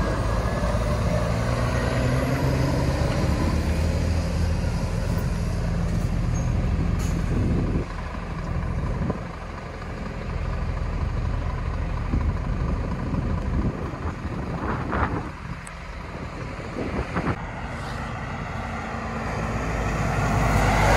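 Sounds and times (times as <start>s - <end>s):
lorry passing close: 0.0s - 7.9s, 15.3s - 20.9s
lorry engine approaching slowly: 0.0s - 20.9s.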